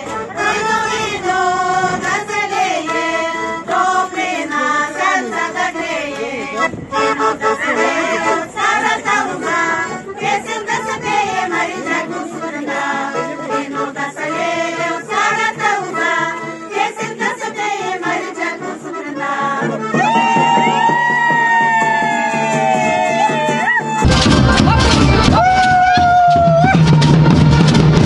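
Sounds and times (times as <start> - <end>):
women's choir singing folk song: 0.0 - 20.9
accordion: 0.0 - 25.9, 26.7 - 28.0.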